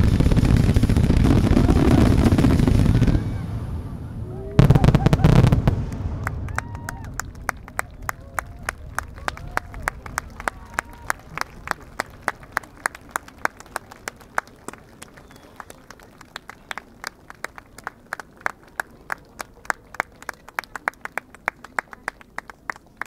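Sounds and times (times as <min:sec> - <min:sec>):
scattered hand clapping: 0:05.9 - 0:23.0.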